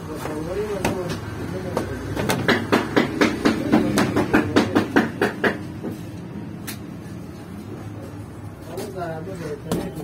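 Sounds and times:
dough balls knocking on metal tray: 0:00.2 - 0:05.9.

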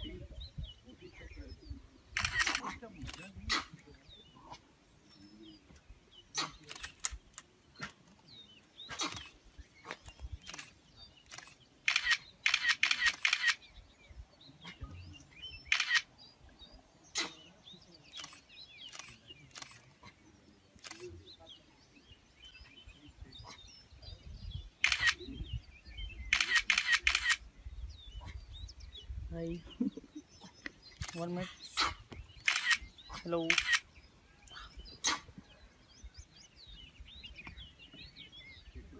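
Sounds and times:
camera shutters clicking: 0:02.2 - 0:03.3, 0:06.6 - 0:07.4, 0:10.4 - 0:13.6, 0:15.7 - 0:16.1, 0:18.2 - 0:19.8, 0:24.8 - 0:25.2, 0:26.3 - 0:27.4, 0:32.4 - 0:32.9, 0:33.5 - 0:33.9.

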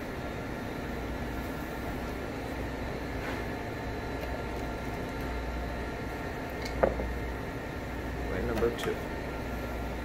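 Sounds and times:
kitchen ventilation hum and hiss: 0:00.0 - 0:10.0.

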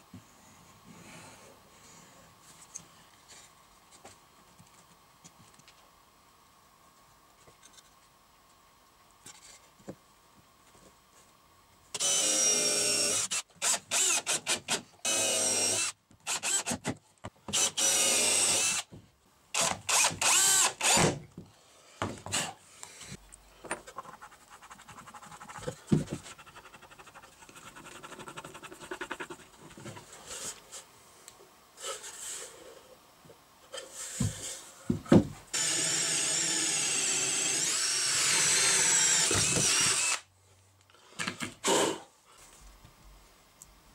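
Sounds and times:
electric drill whining: 0:12.0 - 0:16.8, 0:17.5 - 0:18.9, 0:19.6 - 0:21.1, 0:35.5 - 0:40.2
power tool running: 0:17.5 - 0:18.8, 0:19.6 - 0:21.1, 0:35.5 - 0:40.2.

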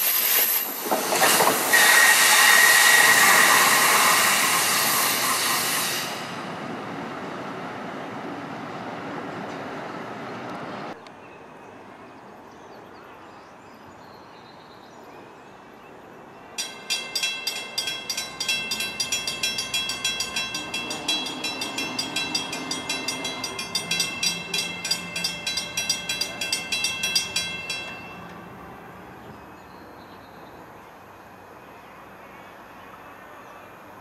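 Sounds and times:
low outdoor noise: 0:06.2 - 0:34.0
railroad crossing bell ringing: 0:16.6 - 0:29.2.

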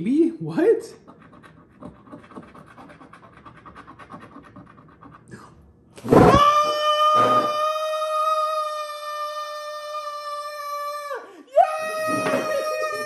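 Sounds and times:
scratch-off card scratching: 0:01.0 - 0:05.3
man yelling: 0:06.2 - 0:13.0.

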